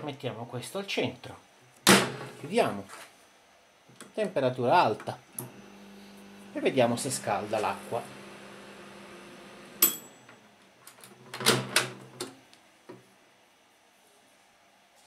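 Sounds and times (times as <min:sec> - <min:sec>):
microwave oven humming: 0:04.7 - 0:12.4.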